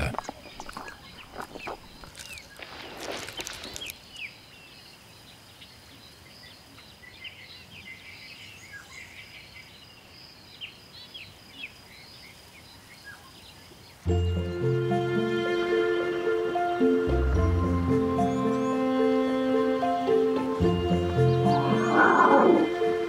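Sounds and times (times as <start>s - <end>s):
birds chirping: 0.0s - 23.0s
rustling noise: 0.2s - 4.2s.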